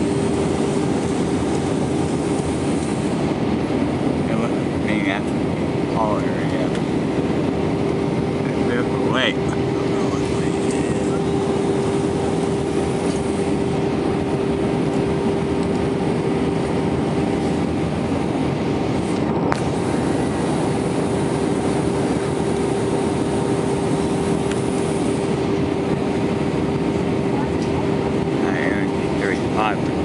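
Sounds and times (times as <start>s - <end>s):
engine and airflow rushing: 0.0s - 30.0s
steady low hum: 0.0s - 30.0s.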